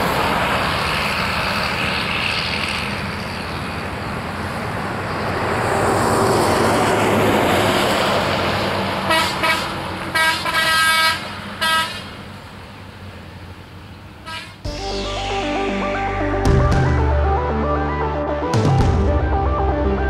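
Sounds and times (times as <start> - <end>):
passenger train rumbling past: 0.0 - 20.0
multi-note train horn blasts: 9.1 - 12.1, 14.2 - 14.8.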